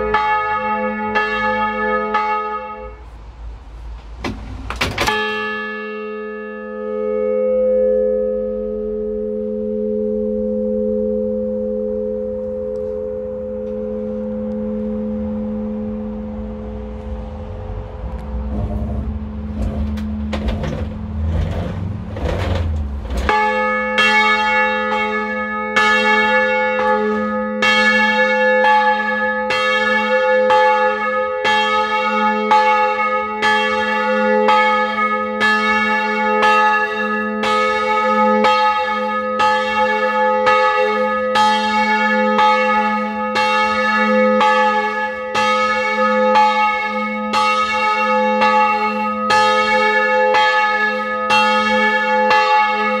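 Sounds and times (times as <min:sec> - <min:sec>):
church bell ringing: 0:00.0 - 0:03.2, 0:05.0 - 0:21.3, 0:22.5 - 0:53.0
low rumble: 0:11.5 - 0:23.5.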